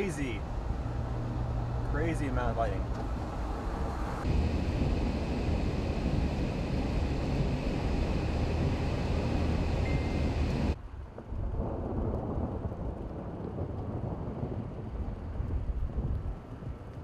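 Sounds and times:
gusting wind buffeting microphone: 0.0 - 17.0
vehicle rumble from inside cab: 0.7 - 10.8.

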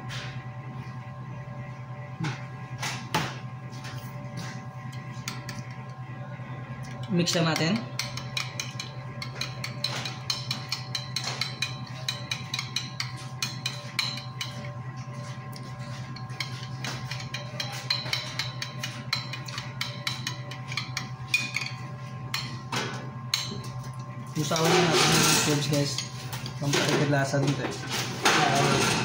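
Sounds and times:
steady low hum: 0.0 - 29.0
metal spoon clinking on glass bowl: 7.0 - 14.7.

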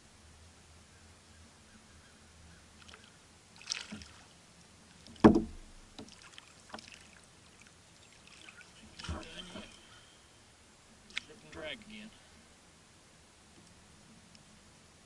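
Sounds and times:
knocks on plastic kayak hull: 5.2 - 6.1.

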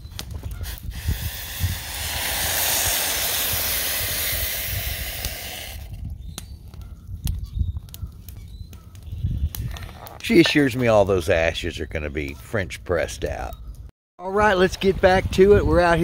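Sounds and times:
hot water pouring: 0.9 - 5.9.

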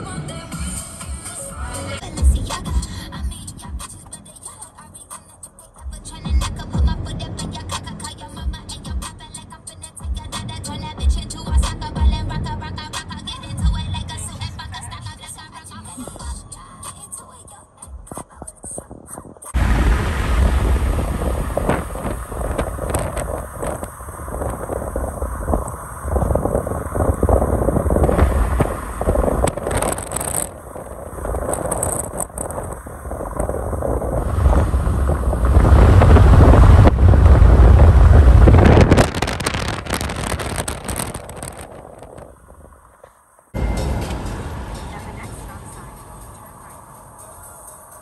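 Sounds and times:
wind buffeting microphone: 18.7 - 42.9.

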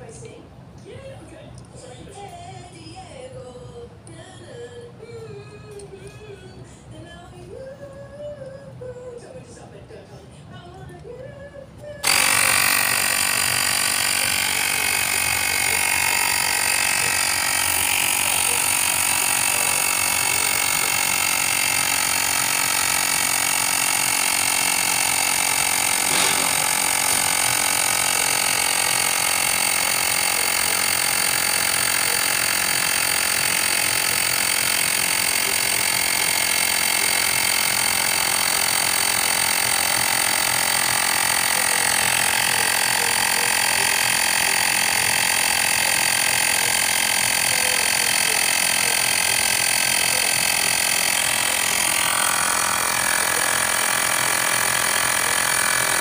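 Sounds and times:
electric tyre inflator running: 12.0 - 56.0.

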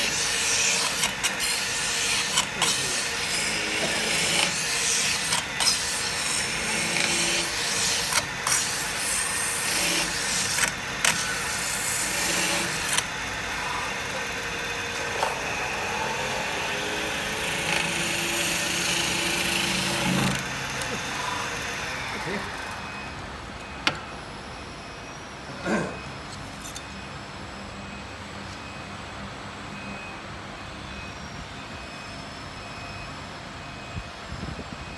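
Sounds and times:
metal spinning lathe rasping: 0.0 - 23.0
workshop machinery hum: 0.0 - 34.9.

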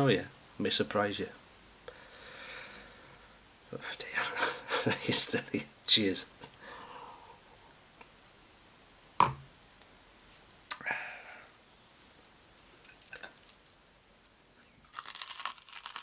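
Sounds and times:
tableware knocking: 9.2 - 9.5.

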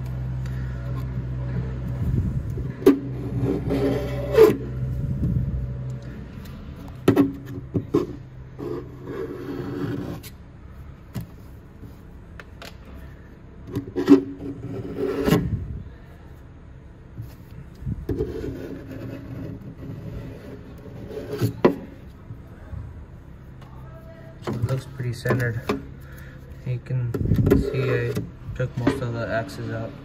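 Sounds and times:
low hum: 0.0 - 9.4
knife scraping metal: 3.2 - 4.8.

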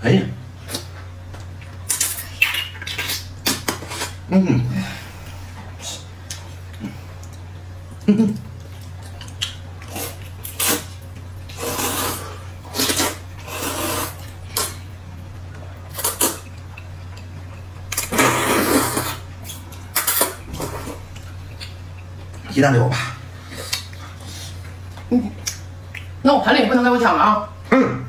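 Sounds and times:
steady low hum: 0.0 - 28.0
people slurping noodles: 11.5 - 14.8, 18.0 - 19.3.

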